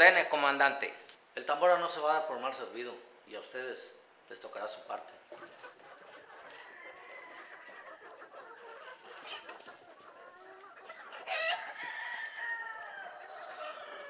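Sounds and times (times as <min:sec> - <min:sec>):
chickens clucking: 0:04.4 - 0:14.0
rooster crowing: 0:06.6 - 0:08.0, 0:11.2 - 0:14.0.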